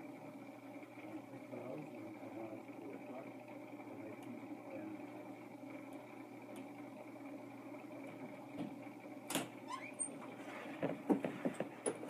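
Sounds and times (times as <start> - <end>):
steady hum: 0.0 - 12.0
faint knocks: 10.8 - 12.0.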